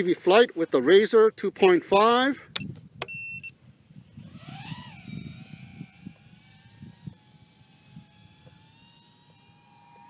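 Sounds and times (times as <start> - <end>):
quadcopter motors whining: 2.5 - 10.0
short electronic beep: 2.6 - 3.5.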